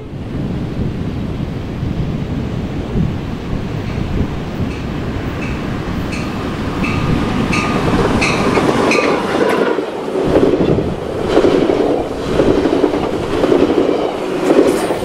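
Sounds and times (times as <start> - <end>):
diesel locomotive passing: 0.0 - 15.0
train cars rumbling: 0.0 - 15.0
wheels clacking over rail joints: 3.8 - 15.0.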